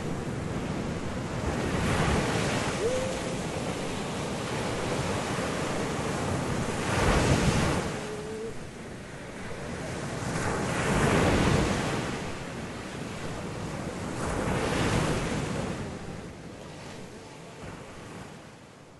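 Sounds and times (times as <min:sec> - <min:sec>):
ocean waves surging: 0:00.0 - 0:18.2.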